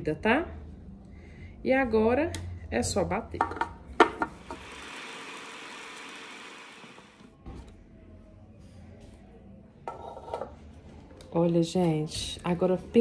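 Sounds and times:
food processor running: 0:04.4 - 0:07.3.

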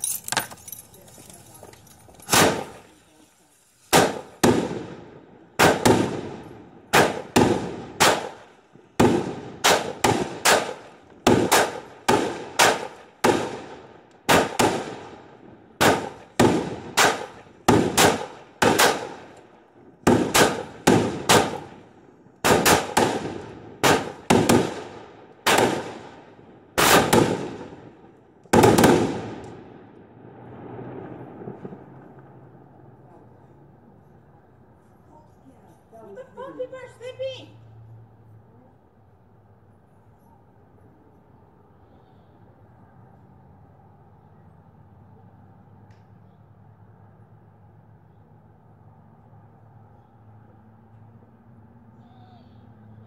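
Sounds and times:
firework cake bangs: 0:03.9 - 0:05.0.

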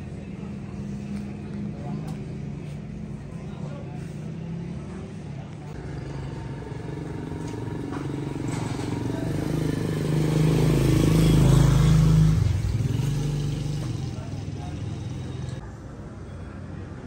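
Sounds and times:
motorcycle passing by: 0:05.8 - 0:15.6.

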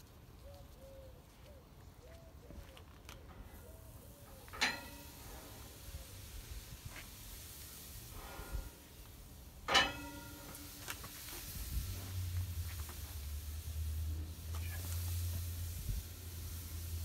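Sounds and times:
faint hiss: 0:03.4 - 0:17.0
metallic clank with ring: 0:04.5 - 0:05.3, 0:09.7 - 0:10.8.

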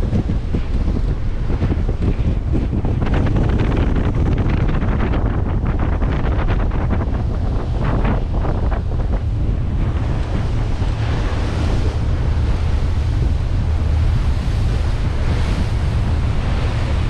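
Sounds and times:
rushing water from hull: 0:00.0 - 0:17.0
steady low rumble: 0:00.0 - 0:17.0
wind buffeting microphone: 0:00.0 - 0:17.0.

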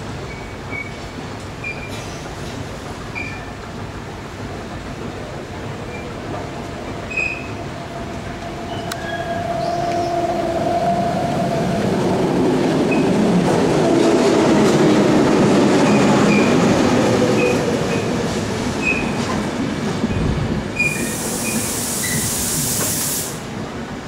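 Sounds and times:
train wheels rumbling on rails: 0:00.0 - 0:24.0
wheel squeals: 0:07.1 - 0:07.6
hissing rush: 0:20.8 - 0:23.5.

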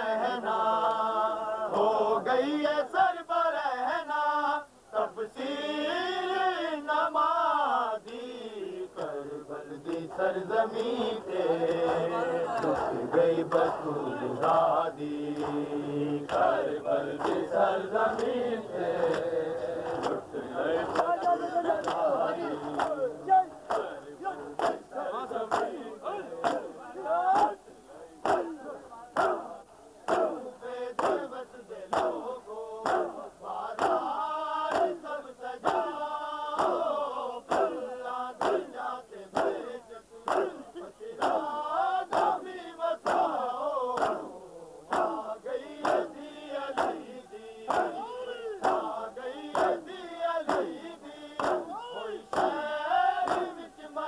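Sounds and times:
men chanting together: 0:00.0 - 0:54.0
hands slapping bare chests: 0:23.7 - 0:23.9, 0:25.5 - 0:25.8, 0:26.4 - 0:26.7, 0:28.2 - 0:28.6, 0:30.1 - 0:31.3, 0:31.9 - 0:32.2, 0:32.8 - 0:33.2, 0:33.8 - 0:34.1, 0:34.7 - 0:35.0, 0:35.6 - 0:35.9, 0:36.6 - 0:36.9, 0:37.5 - 0:37.8, 0:38.4 - 0:38.7, 0:39.3 - 0:39.6, 0:40.3 - 0:40.6, 0:42.1 - 0:42.4, 0:43.0 - 0:43.4, 0:44.0 - 0:44.3, 0:44.9 - 0:45.2, 0:46.7 - 0:47.0, 0:48.6 - 0:48.9, 0:50.4 - 0:50.8, 0:51.4 - 0:52.6, 0:53.2 - 0:53.6.

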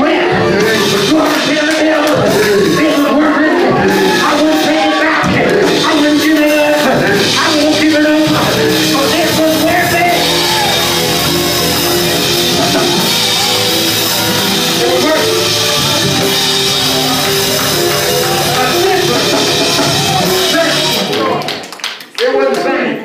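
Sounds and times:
man singing into microphone: 0:00.0 - 0:10.2
praise band playing: 0:00.0 - 0:22.7.

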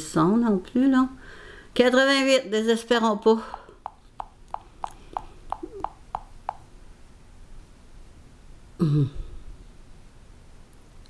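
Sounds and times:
touchscreen feedback ticks: 0:03.6 - 0:06.6.

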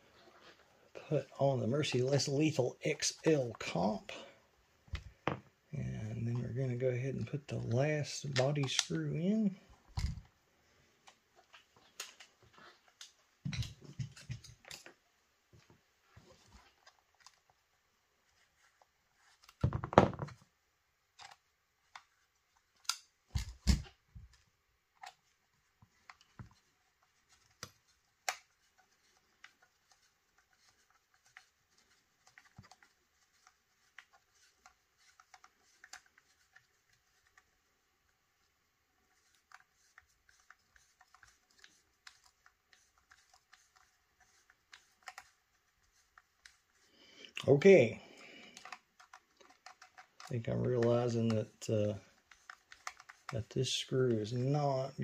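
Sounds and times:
small parts clicking and knocking: 0:21.1 - 0:47.5, 0:48.2 - 0:53.6.

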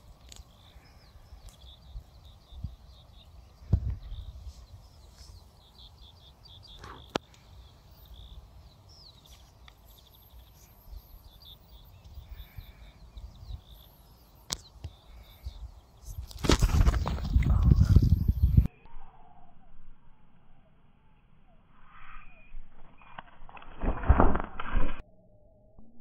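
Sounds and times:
small birds chirping: 0:00.0 - 0:18.7.

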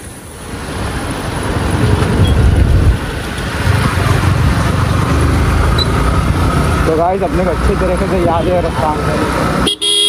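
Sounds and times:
wind noise: 0:01.5 - 0:06.8
motorcycle engine accelerating: 0:01.8 - 0:08.2.

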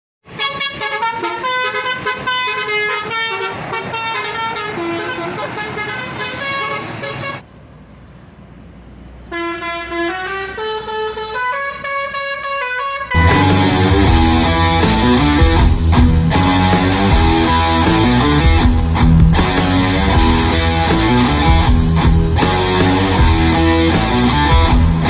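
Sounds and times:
multi-tone bus horn melody: 0:00.2 - 0:07.4, 0:09.3 - 0:18.9, 0:19.5 - 0:24.0
low rumble: 0:13.2 - 0:22.5.

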